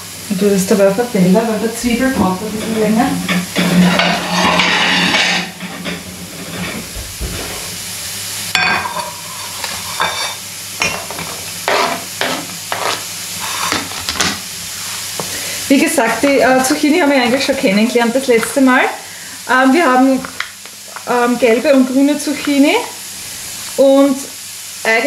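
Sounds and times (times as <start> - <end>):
onions sizzling in a pan: 0.0 - 25.0
kitchen utensils knocking and clicking: 2.2 - 7.0
scraping noise: 2.2 - 7.7.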